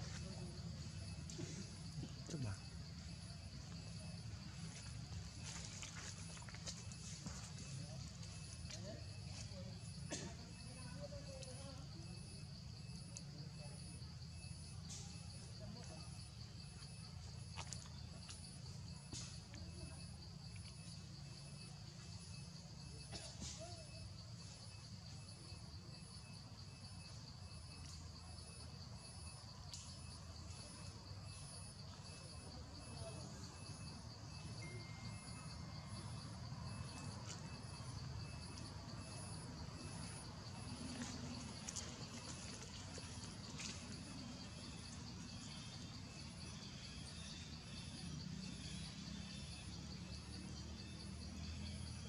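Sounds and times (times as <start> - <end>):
insect chorus buzzing: 0.0 - 52.0.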